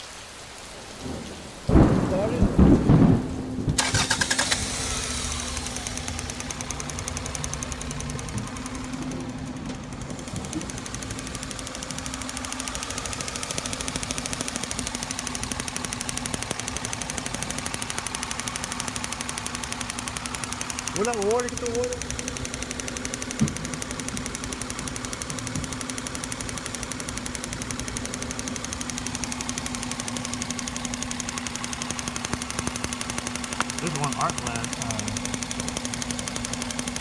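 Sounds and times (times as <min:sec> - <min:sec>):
car engine idling: 0:00.7 - 0:37.0
loud rumble and knocks: 0:01.2 - 0:03.8, 0:23.3 - 0:23.7
spark tester snapping: 0:10.0 - 0:37.0.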